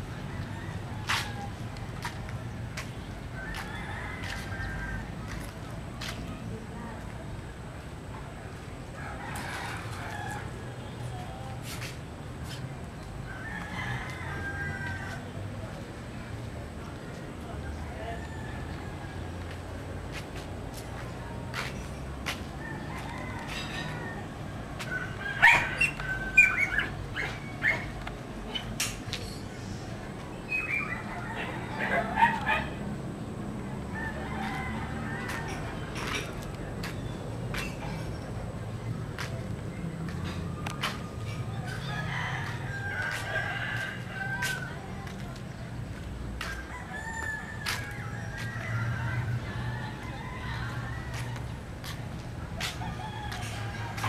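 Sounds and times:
rooster crowing: 0.2s - 1.6s, 3.4s - 5.2s, 13.2s - 15.4s, 22.6s - 27.0s, 33.8s - 35.9s, 41.6s - 44.9s, 46.4s - 51.4s, 52.6s - 54.0s.

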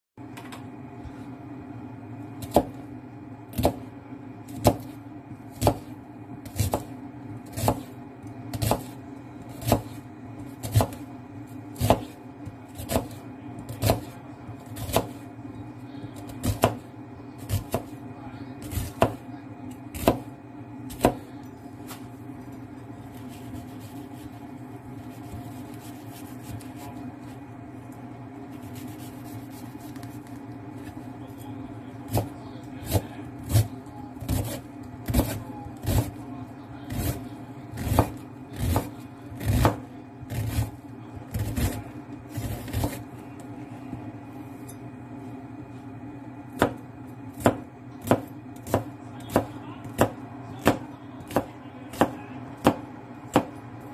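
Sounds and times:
steady low hum: 0.2s - 53.9s
knife chopping on cutting board: 2.4s - 2.8s, 3.5s - 3.9s, 4.5s - 11.1s, 11.7s - 15.2s, 16.2s - 18.0s, 18.6s - 20.3s, 20.9s - 22.0s, 23.1s - 24.4s, 25.0s - 27.0s, 28.5s - 31.0s, 32.0s - 36.2s, 36.9s - 43.1s, 46.5s - 53.6s.

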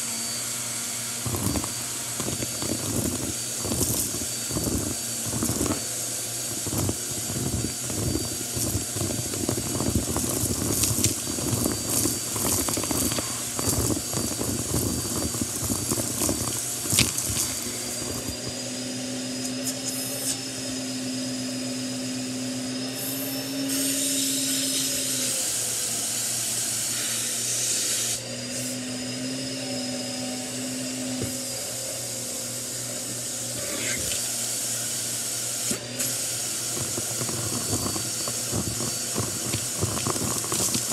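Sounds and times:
vacuum cleaner running: 0.0s - 40.9s
debris crackling in vacuum hose: 0.2s - 20.4s, 33.0s - 40.9s.

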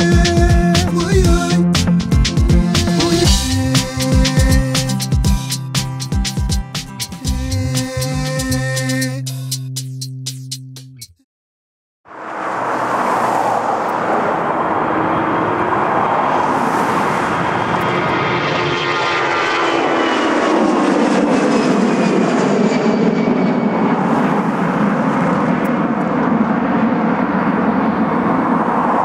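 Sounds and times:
jet engines roaring: 12.1s - 29.0s.

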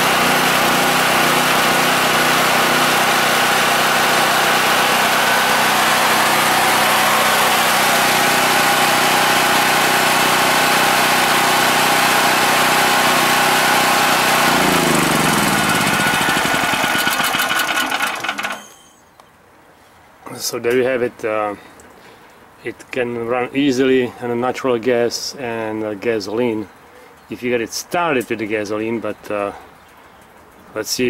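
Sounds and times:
generator engine running: 0.0s - 19.0s.

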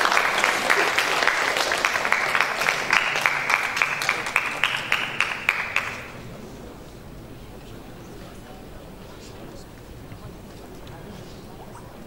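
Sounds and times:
audience applause: 0.0s - 6.2s.

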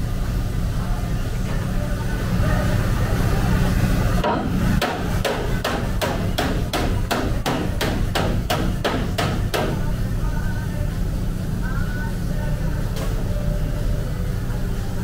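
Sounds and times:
hammer striking sheet metal: 4.2s - 9.8s.

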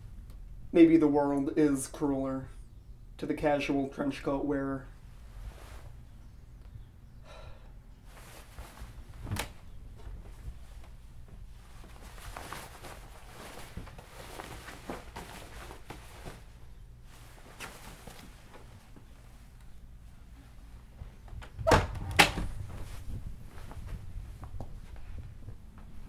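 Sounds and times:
clothes rustling: 5.0s - 6.4s, 8.0s - 26.0s.

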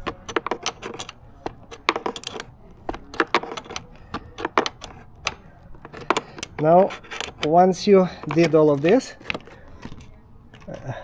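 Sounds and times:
hex key clicking on screw: 0.0s - 7.6s.

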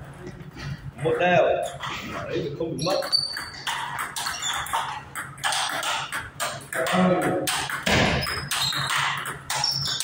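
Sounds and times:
table tennis ball ticking: 2.8s - 10.0s.

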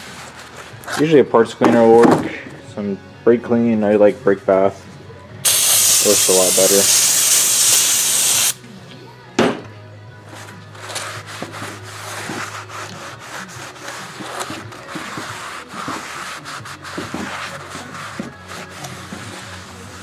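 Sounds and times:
aerosol spray hissing: 5.4s - 8.6s
towel wiping metal: 10.8s - 20.0s.

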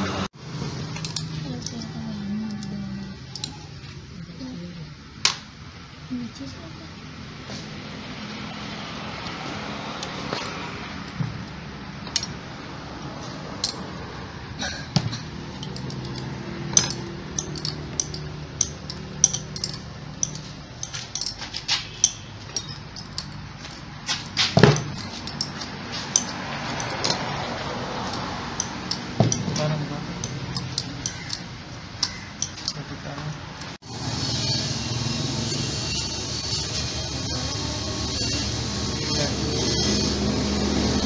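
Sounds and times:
metallic clicks of hand tools: 0.9s - 3.7s, 12.0s - 12.4s, 13.5s - 13.9s, 15.1s - 27.4s, 28.0s - 32.9s.

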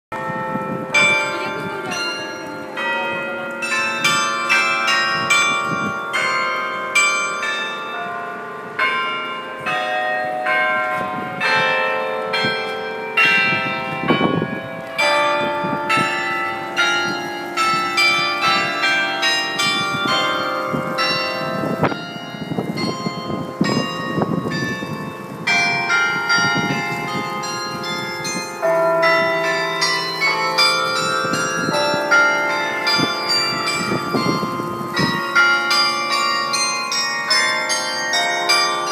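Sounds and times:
carillon bells playing a tune: 0.2s - 38.9s.

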